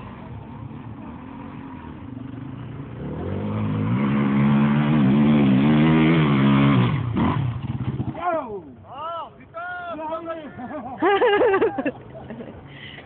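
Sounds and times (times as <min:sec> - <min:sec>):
dirt bike engine revving: 0:00.0 - 0:08.4.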